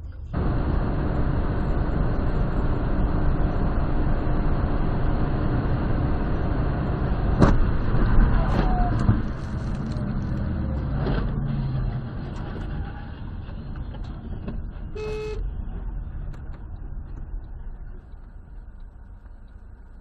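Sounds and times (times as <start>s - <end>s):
road and engine rumble: 0.0s - 20.0s
car horn toot: 15.0s - 15.5s.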